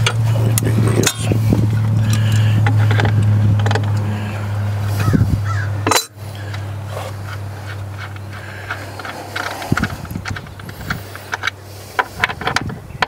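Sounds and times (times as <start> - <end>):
loud low hum: 0.0 - 13.0
crows cawing: 4.1 - 6.8.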